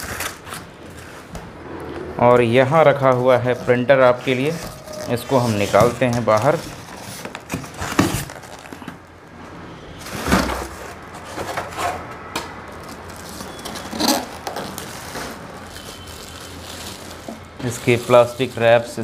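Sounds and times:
polystyrene foam scraping: 0:00.0 - 0:01.6, 0:04.2 - 0:08.9, 0:12.8 - 0:19.0
plastic bag rustling: 0:04.0 - 0:09.1, 0:12.7 - 0:19.0.

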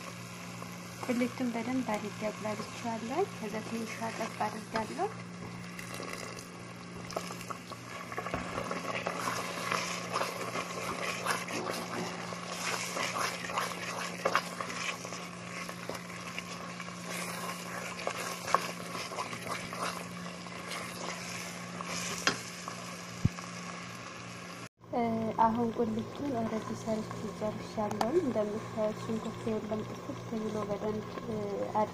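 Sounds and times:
paste sizzling and bubbling in pot: 0:00.0 - 0:31.9
steady low hum: 0:00.0 - 0:31.9
wooden spoon scraping pot: 0:07.1 - 0:22.4.

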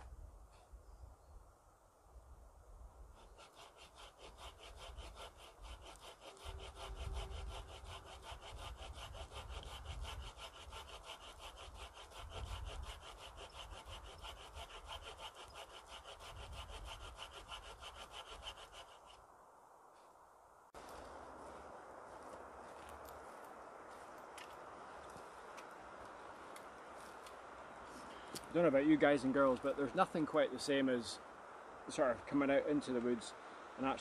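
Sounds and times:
hand saw cutting a log: 0:03.1 - 0:19.2.

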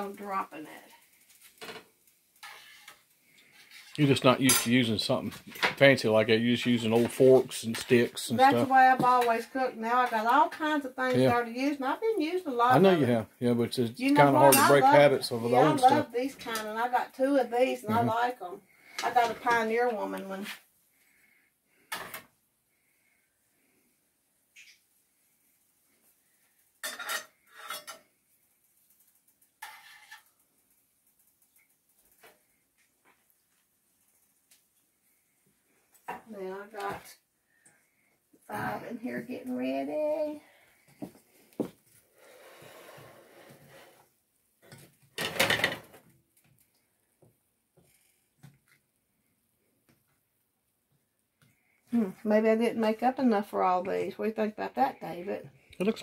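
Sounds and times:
metal spoon scraping cookware: 0:02.4 - 0:04.8, 0:14.4 - 0:15.0, 0:26.8 - 0:28.1, 0:29.6 - 0:30.3
spoon stirring thick batter: 0:27.3 - 0:35.4.

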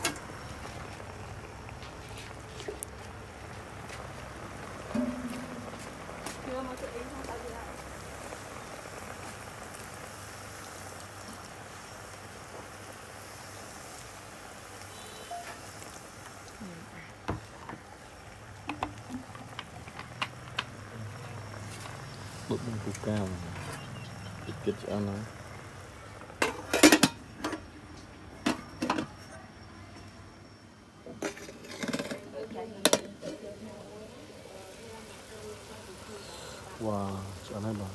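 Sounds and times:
soda pouring and splashing: 0:00.0 - 0:27.2, 0:33.5 - 0:37.9
metal lid clanking on pot: 0:04.9 - 0:05.6, 0:26.4 - 0:27.6, 0:31.1 - 0:33.4.

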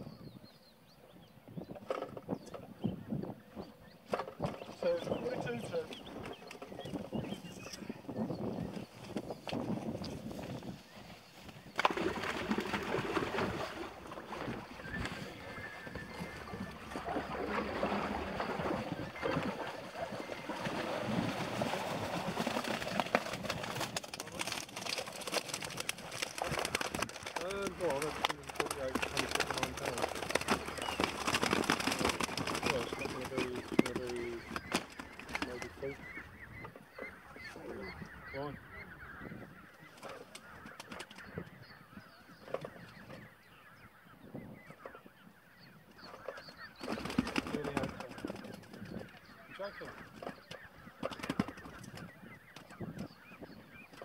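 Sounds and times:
net rustling: 0:22.4 - 0:33.7.

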